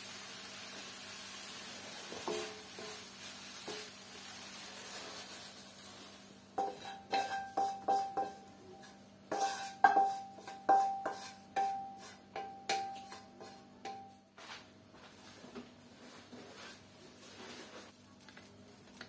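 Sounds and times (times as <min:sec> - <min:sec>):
spatula knocking on wok: 0:06.6 - 0:14.2
wok ringing: 0:06.6 - 0:14.2.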